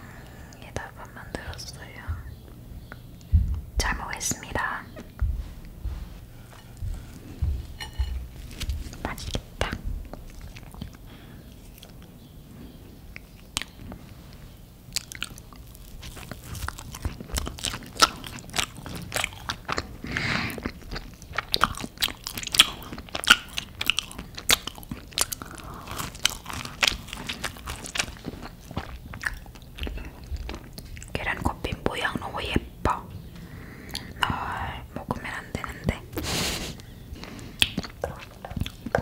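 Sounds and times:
crunchy bread chewing: 0:06.4 - 0:12.1, 0:13.1 - 0:31.2, 0:36.2 - 0:39.0.

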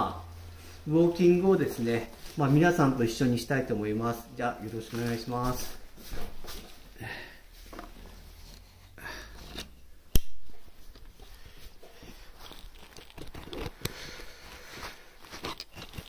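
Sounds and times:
clothing rustling: 0:00.2 - 0:03.5, 0:04.2 - 0:09.0.

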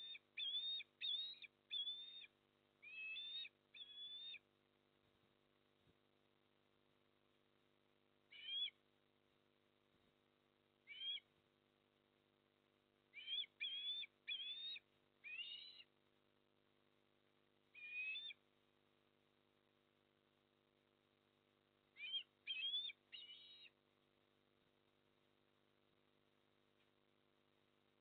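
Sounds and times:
osprey whistled calls: 0:00.0 - 0:04.4, 0:08.3 - 0:08.8, 0:10.9 - 0:11.3, 0:13.2 - 0:15.9, 0:17.8 - 0:18.4, 0:22.0 - 0:23.8
faint steady hum: 0:00.0 - 0:28.0.

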